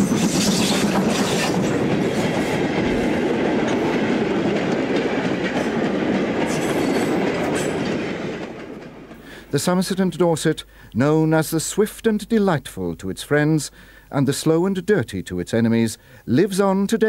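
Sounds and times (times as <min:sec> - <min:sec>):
train wheels clattering over rail joints: 0:00.0 - 0:09.2.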